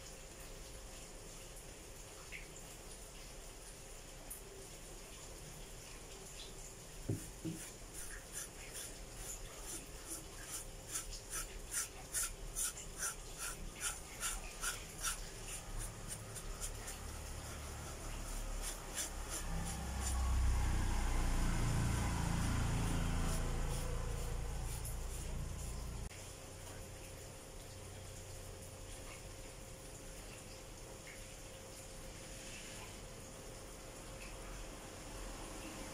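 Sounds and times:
brush scrubbing metal plate: 7.1s - 26.1s.

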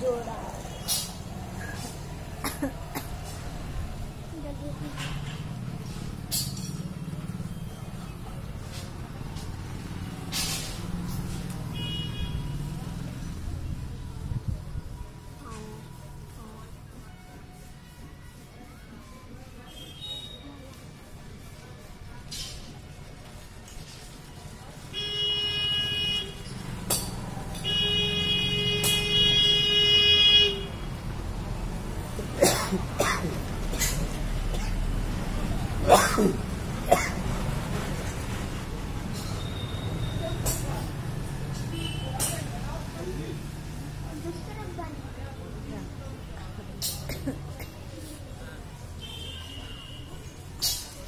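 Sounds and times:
vehicle engine rumbling: 0.0s - 18.3s, 25.8s - 49.2s
brief hissing: 10.3s - 10.9s.

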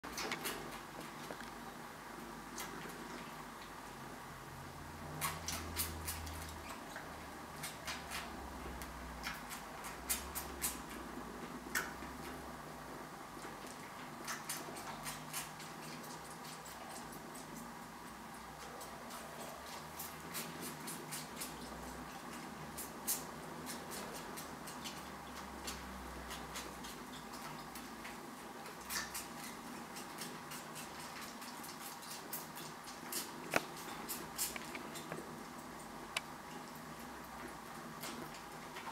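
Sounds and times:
kittens suckling clicks: 13.7s - 36.3s.

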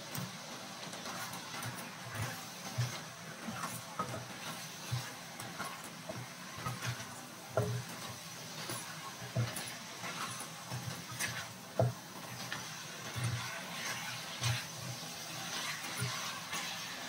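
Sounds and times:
sauce sizzling: 0.0s - 17.0s
spatula scraping a frying pan: 7.6s - 17.0s.

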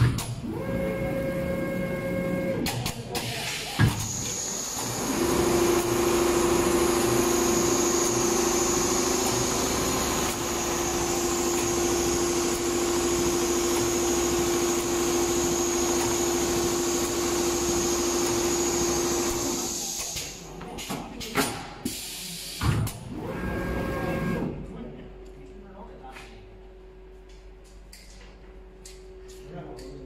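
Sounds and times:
sewing machine humming: 4.1s - 20.0s.

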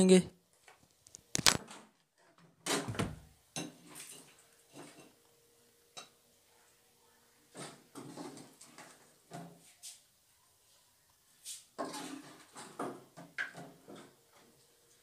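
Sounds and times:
ladle scraping a pot: 11.8s - 12.8s.

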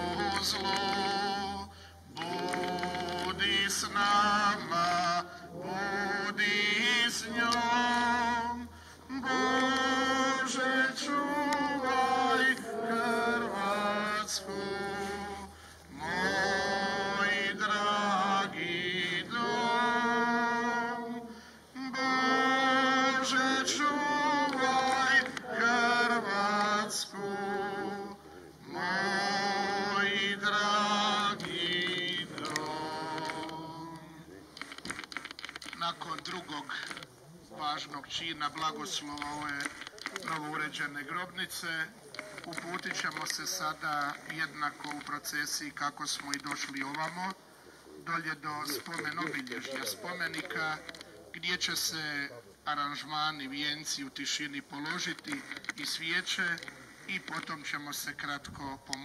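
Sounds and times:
people singing a hymn: 0.0s - 37.0s.

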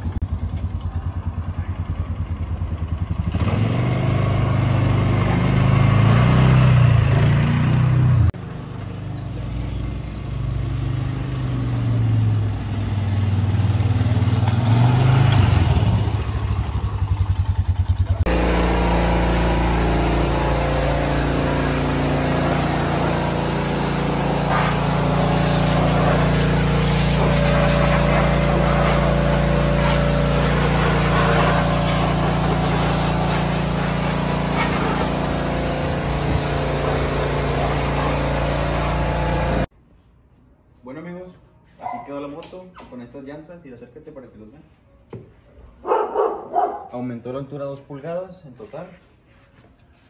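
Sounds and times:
pressure washer mechanical hum: 11.2s - 39.7s
fast-pulsing engine: 15.6s - 39.7s
pressure washer water jet spraying: 18.3s - 39.7s.

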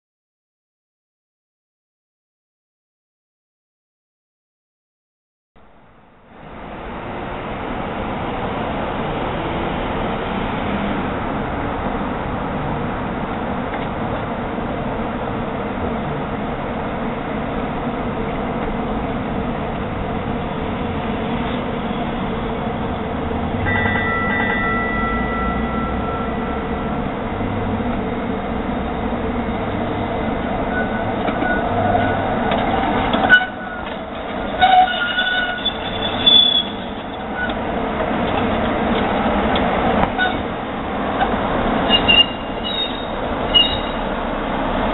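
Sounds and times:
train rumbling over track: 5.6s - 44.9s
high-pitched wheel squeals: 23.6s - 27.6s, 30.6s - 32.3s, 33.1s - 37.6s, 40.1s - 40.5s, 41.2s - 44.2s.

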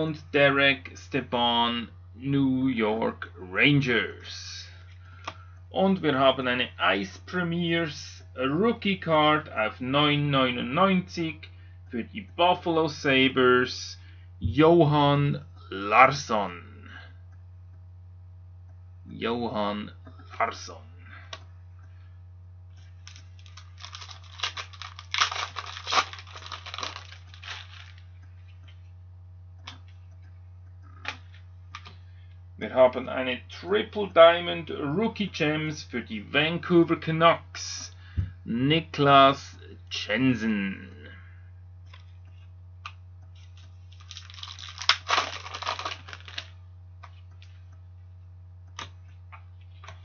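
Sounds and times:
low electrical hum: 0.0s - 50.0s
foil wrapper crinkling: 23.0s - 28.1s, 43.4s - 46.6s.

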